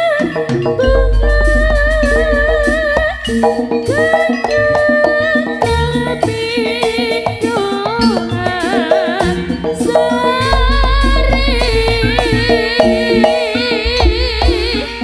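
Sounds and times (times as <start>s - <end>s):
gamelan tones: 0.0s - 15.0s
hand drums playing: 0.0s - 15.0s
woman singing: 0.0s - 15.0s
deep bass: 0.8s - 4.0s, 10.6s - 12.6s.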